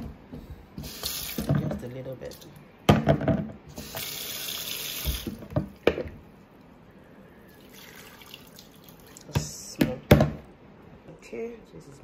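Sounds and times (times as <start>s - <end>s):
water running: 0.8s - 2.6s, 3.7s - 6.2s, 7.5s - 9.6s.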